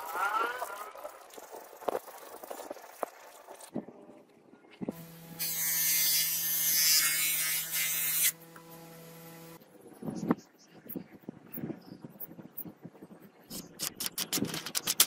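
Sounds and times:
bench grinder motor humming: 5.0s - 9.6s.

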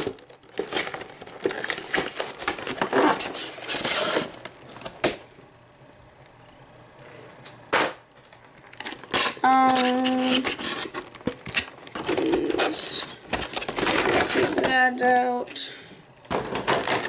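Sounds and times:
packaging crinkling and rustling: 0.0s - 5.2s, 8.2s - 15.5s, 16.2s - 17.0s.

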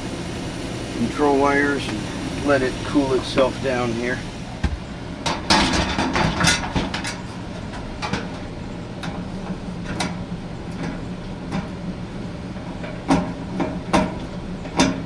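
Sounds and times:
furnace blower hum: 0.0s - 15.0s.

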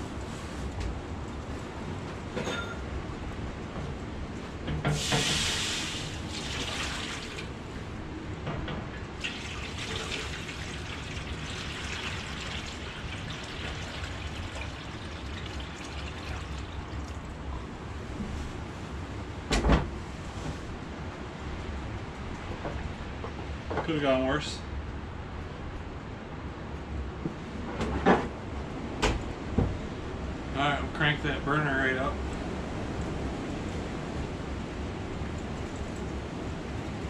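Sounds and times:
sap pouring into a pan: 5.0s - 7.5s, 9.2s - 17.4s.

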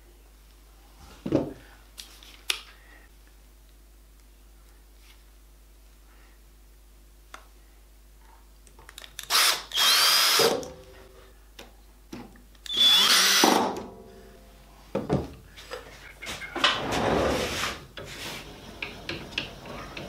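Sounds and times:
cordless drill spinning: 9.2s - 10.5s, 12.7s - 13.4s.

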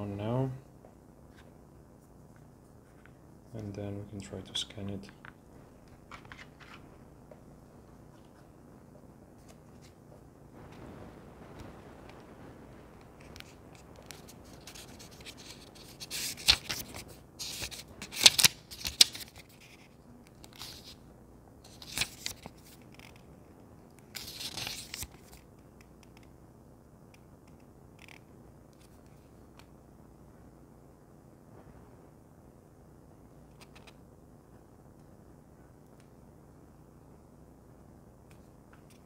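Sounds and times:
scratching and rubbing of objects: 1.3s - 23.3s, 24.0s - 25.5s.

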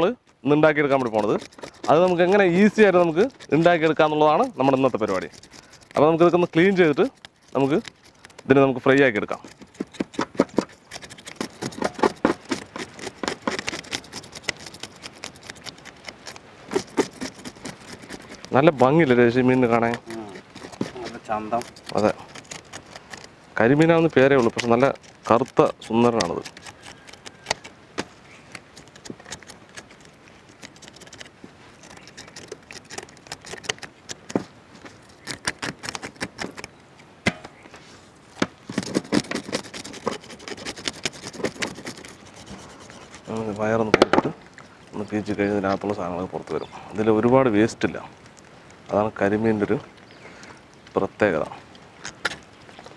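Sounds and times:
scissors scraping fish scales: 0.7s - 36.7s, 38.7s - 43.9s
blade ticking against tray: 0.9s - 18.6s, 23.8s - 27.6s.

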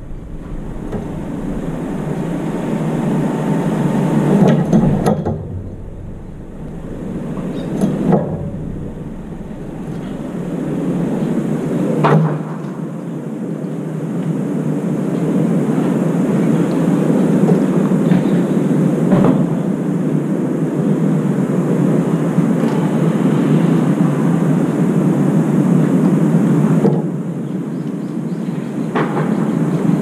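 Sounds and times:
urban background rumble: 0.0s - 12.6s.

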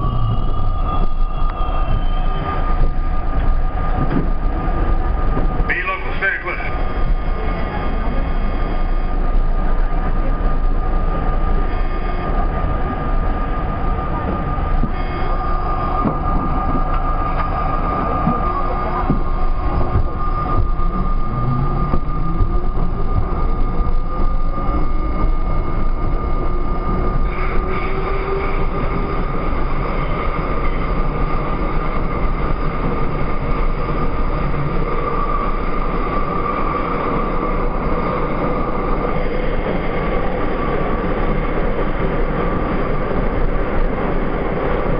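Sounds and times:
train wheels rumbling on track: 0.0s - 44.9s
rising tone: 14.4s - 27.2s.

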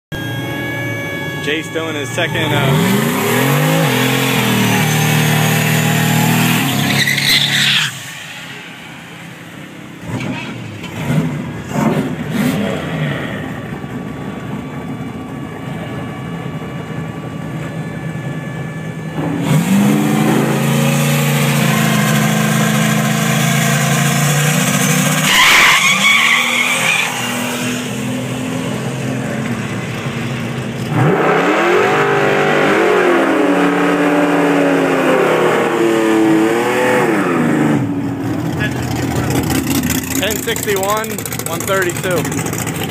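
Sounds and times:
engine throttle blips: 0.0s - 42.9s
tires squealing: 0.2s - 13.4s, 19.4s - 28.8s
race car engine revving: 0.2s - 14.9s, 18.0s - 42.9s.

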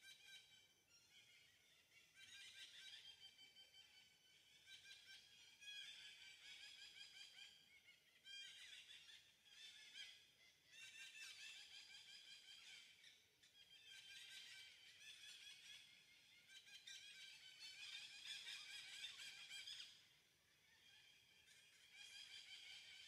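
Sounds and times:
high-pitched chirping chorus: 10.9s - 23.0s.

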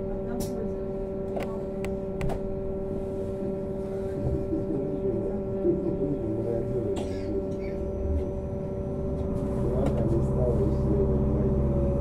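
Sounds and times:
trolleybus electric hum: 0.0s - 12.0s
low rumble: 7.6s - 12.0s.

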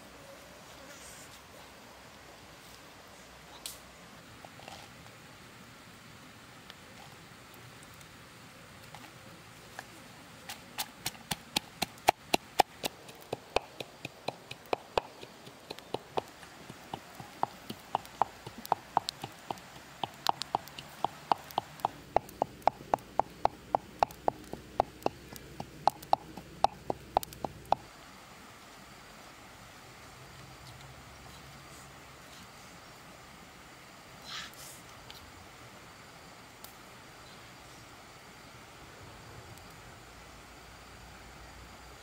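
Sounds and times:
wooden pestle pounding in mortar: 11.0s - 27.8s.

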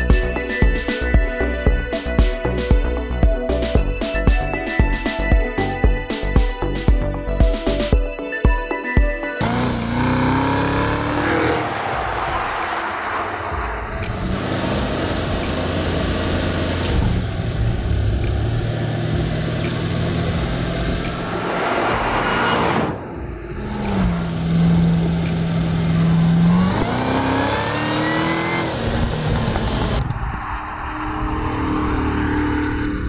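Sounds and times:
car engine accelerating: 9.4s - 33.0s
car exhaust passing by: 9.4s - 33.0s.

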